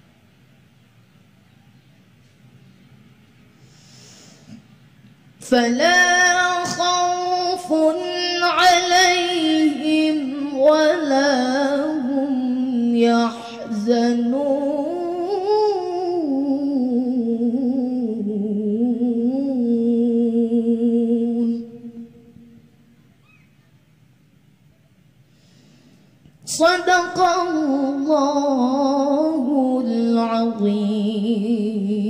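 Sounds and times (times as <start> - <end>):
boy chanting into a microphone: 5.4 - 18.3, 26.4 - 32.0.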